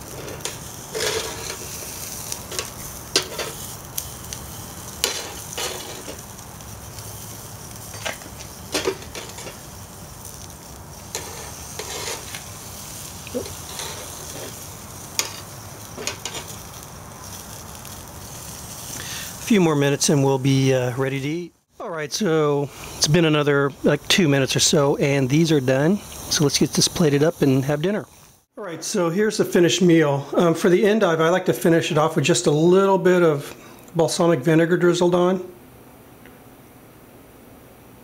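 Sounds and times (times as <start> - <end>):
food sizzling on grill grate: 0.0 - 35.3
metal tongs clacking on grate: 2.4 - 4.1, 5.0 - 6.2, 7.9 - 9.6, 11.1 - 12.4, 15.2 - 16.6.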